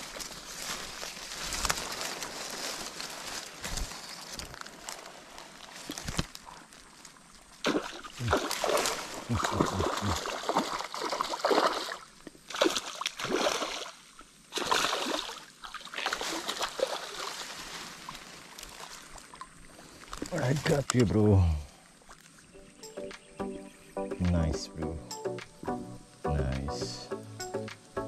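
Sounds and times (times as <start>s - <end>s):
fish splashing in water: 7.6s - 20.3s.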